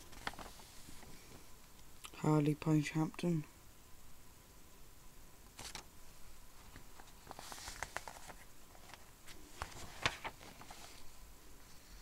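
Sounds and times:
paper pages rustling: 0:00.0 - 0:01.1, 0:05.6 - 0:05.9, 0:06.6 - 0:11.1.

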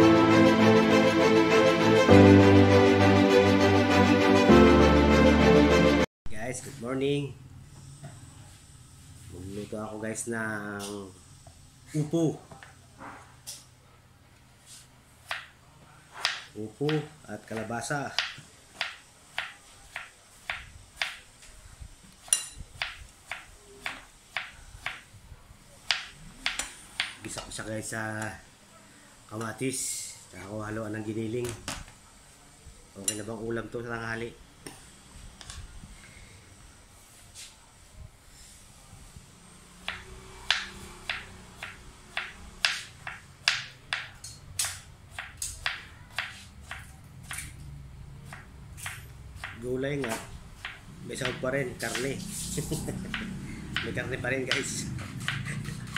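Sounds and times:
knife chopping on cutting board: 0:16.2 - 0:21.2, 0:22.2 - 0:25.0, 0:39.8 - 0:47.6, 0:48.3 - 0:52.1, 0:53.1 - 0:55.9.

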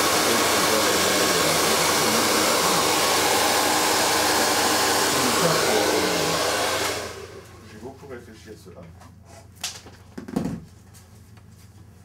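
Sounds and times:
hair dryer blowing air: 0:00.0 - 0:07.7.

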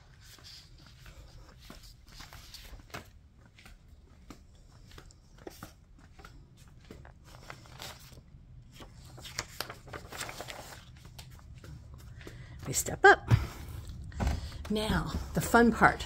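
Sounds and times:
faint footsteps on concrete: 0:00.1 - 0:07.3.

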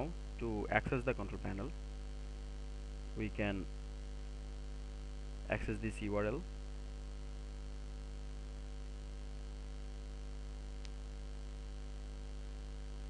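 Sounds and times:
electrical mains hum: 0:00.0 - 0:13.0
faint click: 0:10.8 - 0:11.0.

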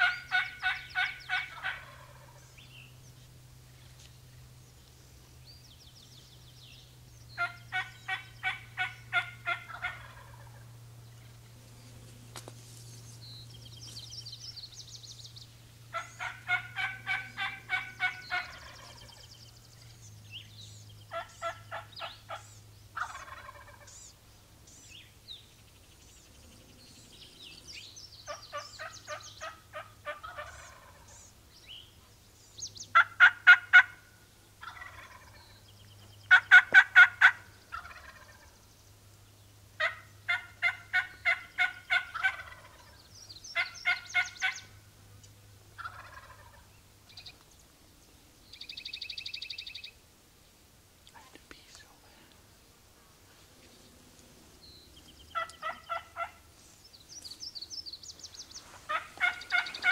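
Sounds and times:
turkey calling: 0:00.0 - 0:02.7, 0:07.4 - 0:10.8, 0:15.9 - 0:19.3, 0:21.1 - 0:24.8, 0:28.3 - 0:31.3, 0:32.9 - 0:35.5, 0:36.3 - 0:38.6, 0:39.8 - 0:44.8, 0:45.8 - 0:47.4, 0:55.1 - 0:56.7, 0:58.4 - 0:59.9
small birds chirping: 0:00.0 - 0:33.2, 0:34.2 - 0:59.9.

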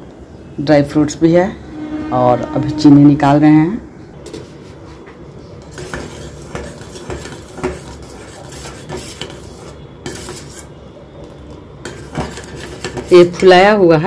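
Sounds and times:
spoon scraping a steel pot: 0:05.6 - 0:10.8, 0:11.8 - 0:13.2.

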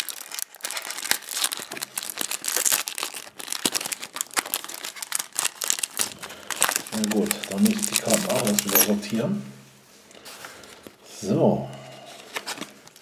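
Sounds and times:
foil pack crinkling and tearing: 0:00.0 - 0:09.2, 0:12.2 - 0:13.0.

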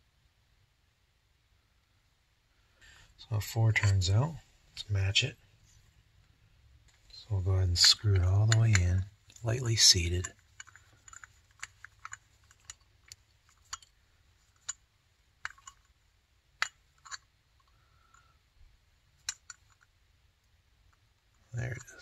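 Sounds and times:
screwdriver and metal parts clicking: 0:07.8 - 0:16.0, 0:16.6 - 0:18.3.

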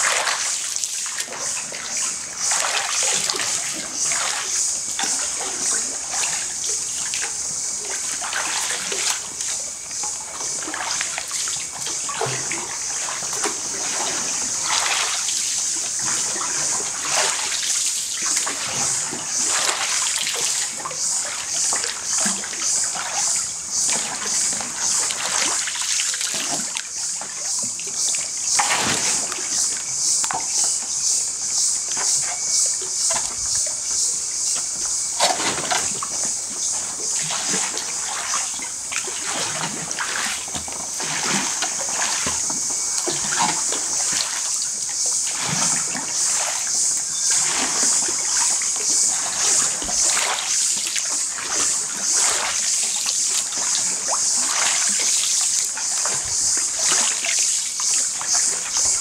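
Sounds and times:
pole splashing in water: 0:02.5 - 0:06.5, 0:08.2 - 0:09.2, 0:12.0 - 0:15.3, 0:28.6 - 0:29.5, 0:37.2 - 0:44.5, 0:47.3 - 0:55.2.

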